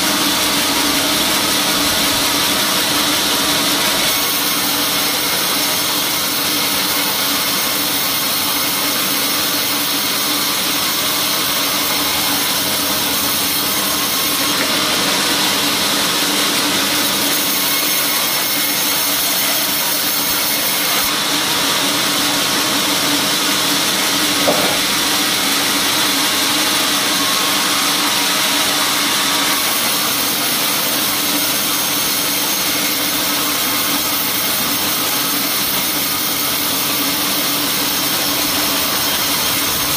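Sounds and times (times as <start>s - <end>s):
brief knock: 24.4s - 25.0s
saw blade ripping log: 24.4s - 25.1s.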